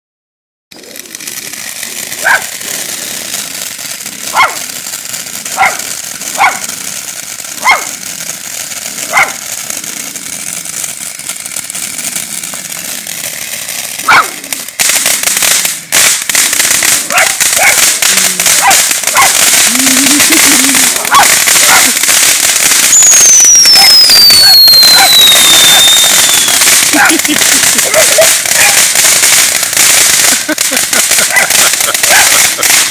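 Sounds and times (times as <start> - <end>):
firework fountain hissing: 0.7 - 32.9
dog barking: 2.2 - 2.5, 4.3 - 4.6, 5.5 - 6.7, 7.6 - 8.0, 9.0 - 9.4, 14.0 - 14.4, 17.1 - 17.9, 18.6 - 19.4, 21.1 - 22.0, 28.2 - 28.9, 31.2 - 32.4.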